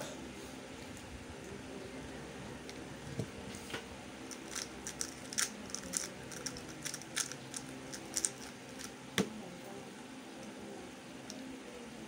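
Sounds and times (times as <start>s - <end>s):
electric fan humming: 0.0s - 12.0s
speed cube clicking: 4.4s - 8.9s.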